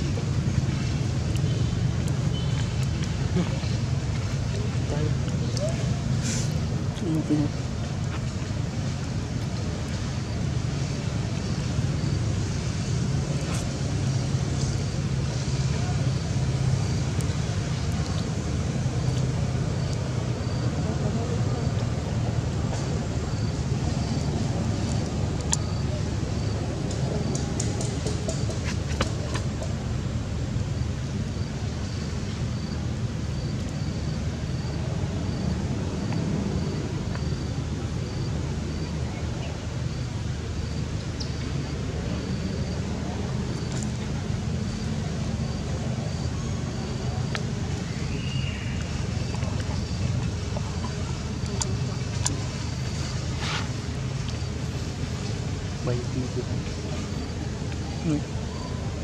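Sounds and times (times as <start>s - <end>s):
low rumbling background noise: 0.0s - 59.0s
faint high-pitched chirp: 47.8s - 48.9s.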